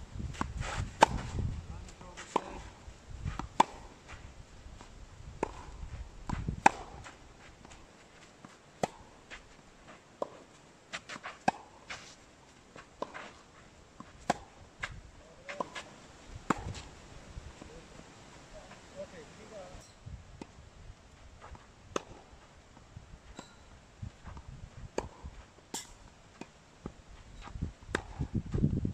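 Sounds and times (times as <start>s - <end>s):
tennis balls struck with rackets: 0.4s - 2.8s, 3.4s - 4.0s, 5.4s - 7.8s, 8.8s - 9.1s, 11.1s - 11.8s, 14.0s - 14.6s, 15.4s - 16.9s, 21.9s - 22.4s, 24.3s - 26.6s, 27.9s - 28.3s
tennis balls bouncing on clay: 0.4s - 4.3s, 5.3s - 9.6s, 12.7s - 17.0s, 21.4s - 28.6s.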